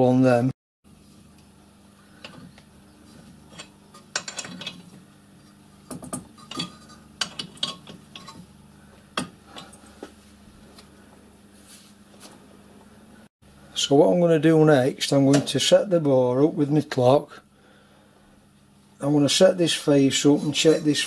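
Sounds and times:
metallic clinks and knocks: 0:03.4 - 0:05.0, 0:05.9 - 0:08.5.

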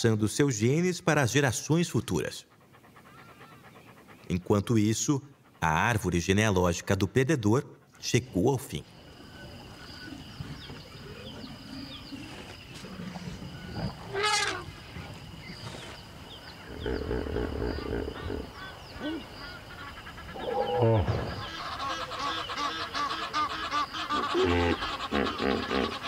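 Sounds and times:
bird calls: 0:02.0 - 0:06.6, 0:07.8 - 0:26.0.

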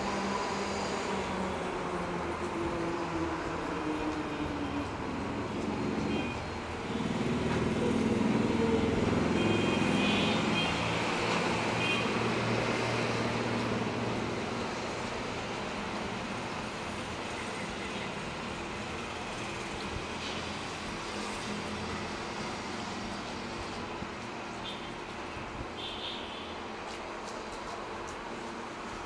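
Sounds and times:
passing motor vehicle engine: 0:06.8 - 0:15.5.

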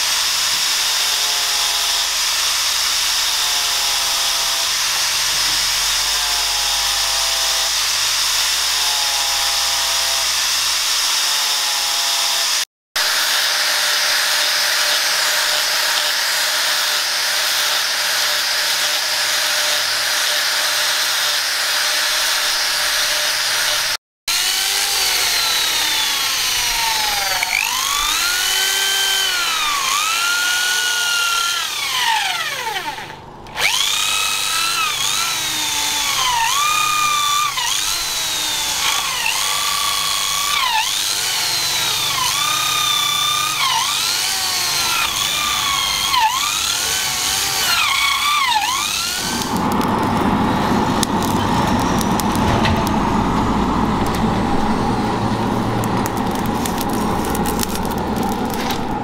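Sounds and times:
electric drill boring into wood: 0:00.0 - 0:59.0
electric blower humming: 0:12.3 - 0:59.0.

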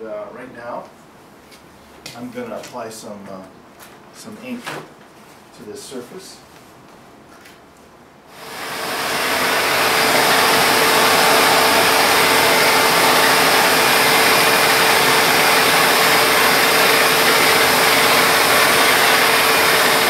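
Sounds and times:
glass grinder hum: 0:08.4 - 0:20.0
hissing grind: 0:08.5 - 0:20.0.

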